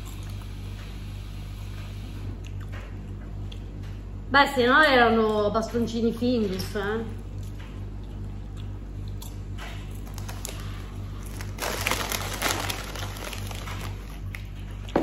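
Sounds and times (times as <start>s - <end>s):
steady low hum: 0.0s - 15.0s
potato chips crunching: 7.3s - 15.0s.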